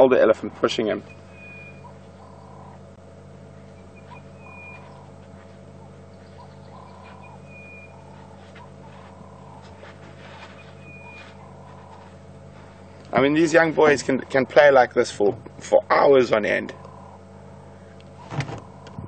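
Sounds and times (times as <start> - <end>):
steady low hum: 0.0 - 19.0
low animal call: 1.0 - 13.6, 16.7 - 19.0.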